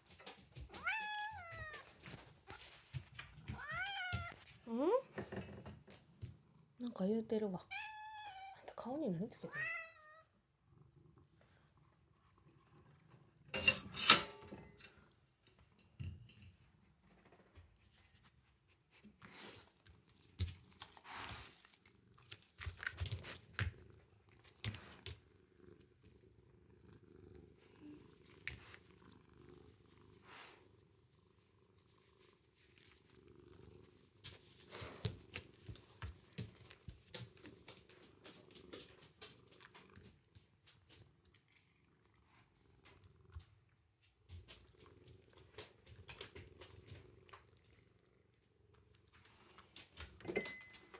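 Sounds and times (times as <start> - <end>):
cat purring: 8.6 - 13.6, 16.5 - 50.6.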